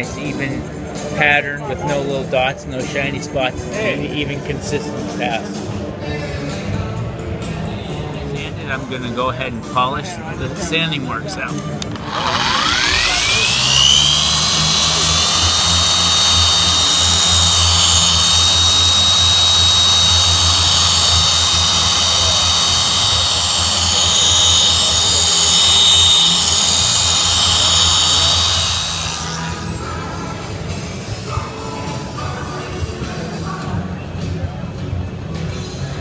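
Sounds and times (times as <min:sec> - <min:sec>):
machine polisher whining: 0:11.9 - 0:30.0.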